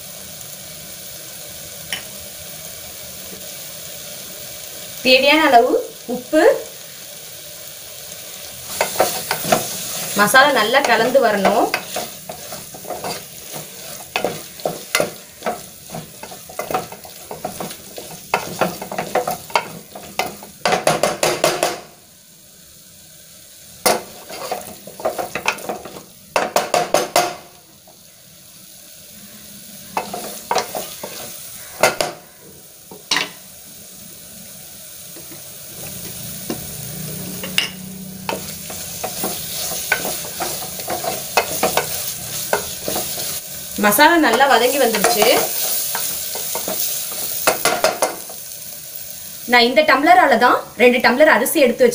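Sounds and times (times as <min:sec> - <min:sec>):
food sizzling: 0:00.0 - 0:51.9
spatula scraping metal pot: 0:08.7 - 0:20.3.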